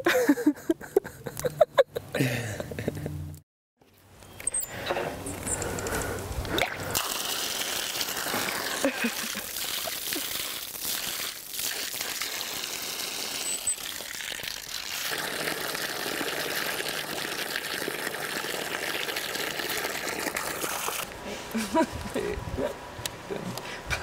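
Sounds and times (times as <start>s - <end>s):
water splashing: 6.5s - 21.1s
water pouring from pump spout: 6.6s - 21.1s.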